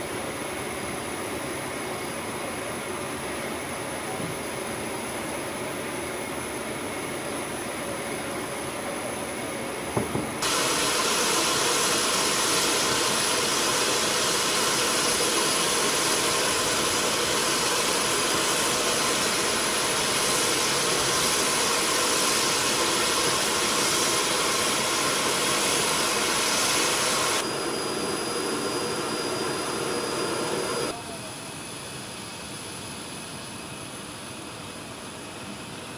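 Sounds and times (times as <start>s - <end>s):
jet engines roaring: 10.3s - 34.2s.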